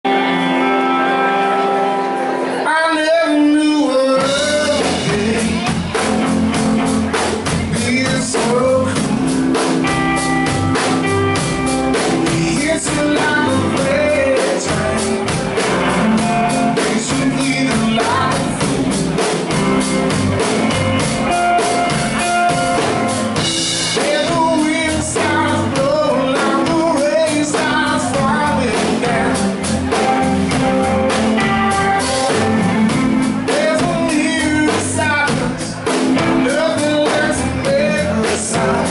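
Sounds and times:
bass guitar: 0.0 - 38.9
electric guitar: 0.0 - 38.9
man singing: 2.6 - 10.0, 11.9 - 19.6, 23.4 - 30.4, 31.4 - 38.9
drum kit steady beat: 4.1 - 38.9.

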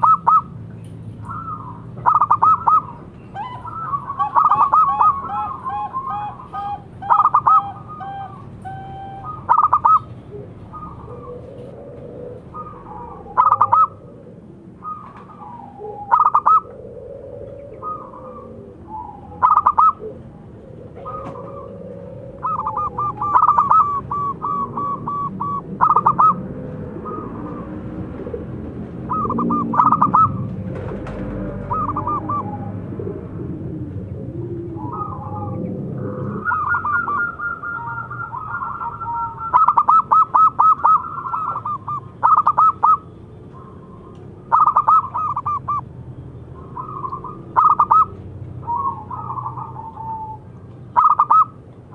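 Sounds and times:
dove trilling coos: 0.0 - 51.7.

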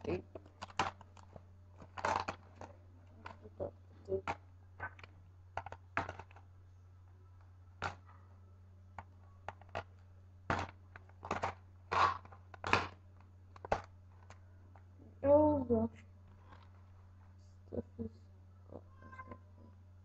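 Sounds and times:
plastic packaging crinkling: 0.3 - 3.6, 10.5 - 13.0
tape tearing: 1.9 - 2.4.

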